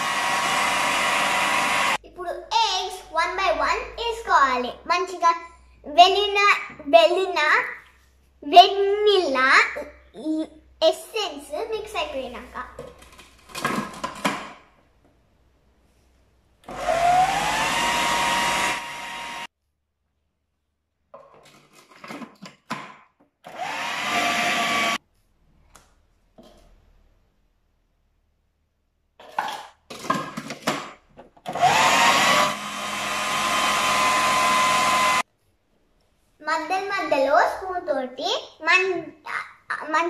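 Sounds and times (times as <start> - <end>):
food processor motor whining: 0.0 - 2.0, 16.6 - 19.5, 23.4 - 25.0, 31.5 - 35.2.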